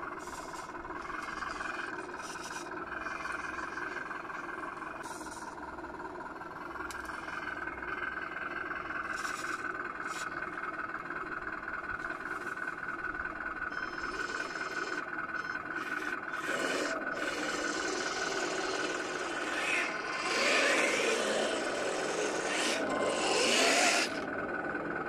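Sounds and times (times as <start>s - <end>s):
model tank rough running: 0.0s - 25.0s
model vehicle motor whine: 6.8s - 10.7s, 11.3s - 25.0s.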